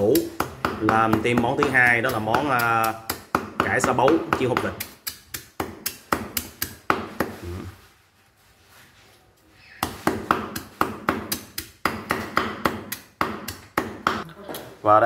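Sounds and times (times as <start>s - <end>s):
cleaver chopping on wooden board: 0.0s - 7.4s, 9.8s - 14.2s.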